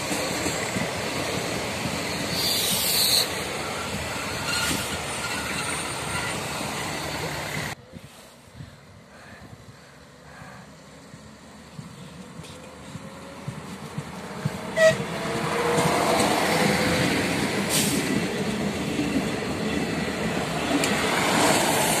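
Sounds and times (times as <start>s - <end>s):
diesel train passing: 0.0s - 7.9s, 8.8s - 22.0s.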